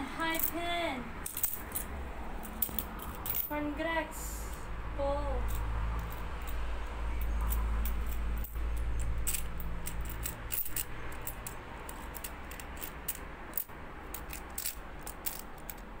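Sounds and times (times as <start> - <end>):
metal coins clinking and sliding: 1.2 - 3.6, 5.4 - 6.6, 7.2 - 16.0.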